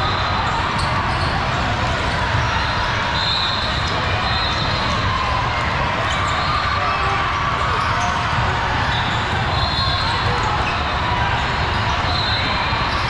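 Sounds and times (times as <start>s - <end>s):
chatter of people: 0.0s - 13.0s.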